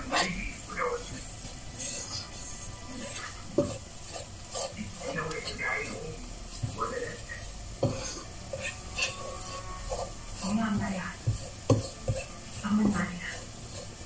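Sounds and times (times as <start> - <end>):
light sizzling: 0.0 - 14.0
utensil scraping a frying pan: 0.0 - 14.0
sharp knocks against a pan: 11.3 - 12.3.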